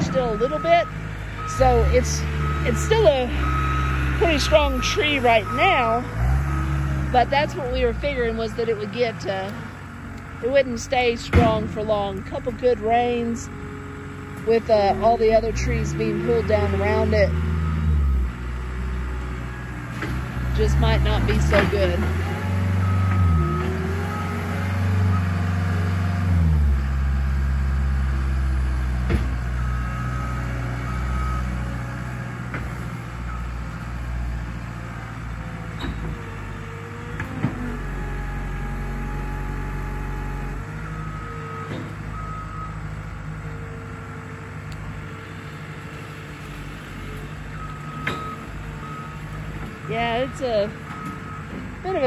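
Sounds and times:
backup alarm beeping: 0.0 - 9.2
loader engine working: 0.0 - 52.0.

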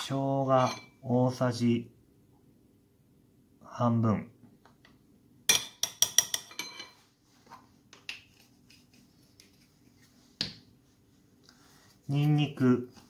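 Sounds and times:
spoon tapping ceramic bowl: 5.5 - 6.9.

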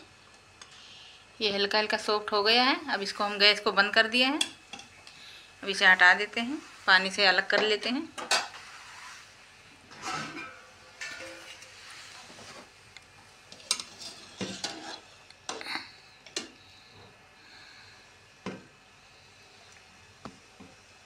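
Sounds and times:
metal ladle scraping metal pot: 9.9 - 12.6, 13.6 - 15.1.

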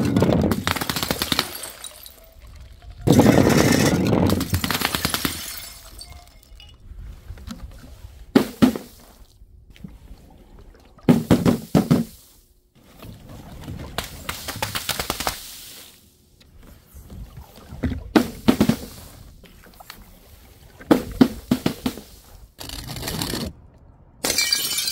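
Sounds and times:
glass bottles shattering: 1.2 - 2.5, 3.1 - 6.8, 24.2 - 24.9
glass shards tinkling: 5.4 - 6.8, 24.2 - 24.9.

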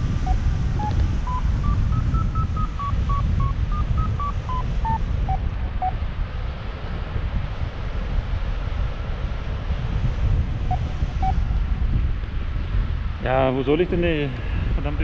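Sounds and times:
variometer beeping: 0.0 - 6.0, 10.7 - 11.6
wind noise on microphone: 0.0 - 15.0.

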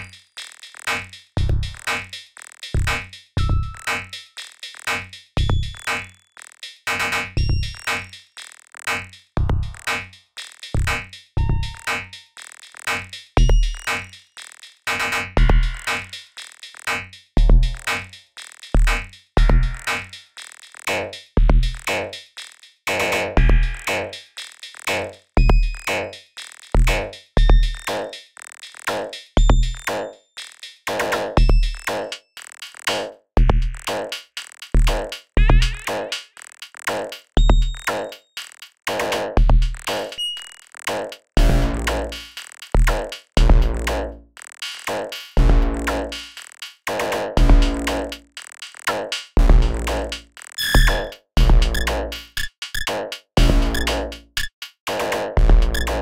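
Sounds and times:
electronic kick thumps: 5.4 - 5.9, 9.4 - 9.8, 15.4 - 15.9, 17.4 - 17.9, 23.4 - 23.9, 25.4 - 26.0, 34.8 - 36.0, 39.4 - 40.0, 41.4 - 42.2, 42.8 - 44.1, 44.9 - 46.2, 47.4 - 54.4, 55.4 - 56.0
electronic clicks: 50.4 - 53.0, 53.6 - 54.5, 55.6 - 56.0.

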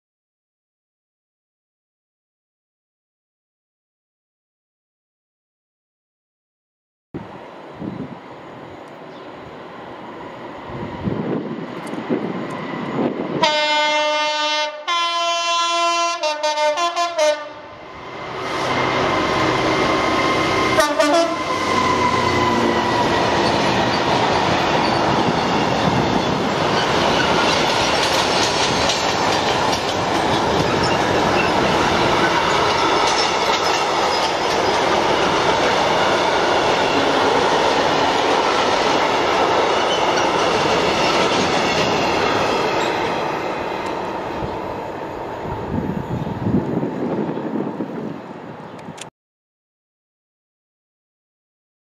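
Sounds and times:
locomotive horn blasts: 13.4 - 17.7, 20.6 - 21.6
freight wagons clattering over rails: 23.4 - 35.7.

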